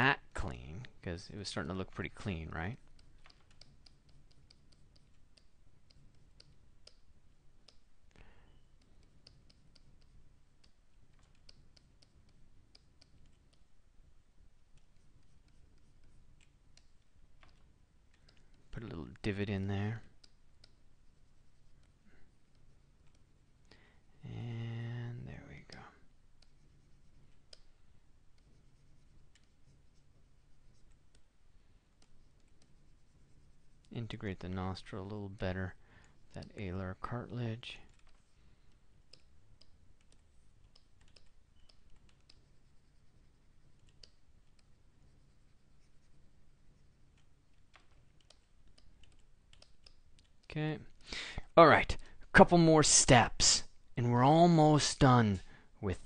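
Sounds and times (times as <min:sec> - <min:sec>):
keyboard and mouse clicking: 0:02.8 - 0:08.2, 0:08.8 - 0:13.7, 0:14.7 - 0:18.7, 0:20.2 - 0:20.8, 0:27.2 - 0:28.5, 0:29.3 - 0:29.6, 0:37.9 - 0:42.6, 0:43.6 - 0:44.8, 0:47.0 - 0:50.5
faint computer mouse clicks: 0:47.1 - 0:50.4.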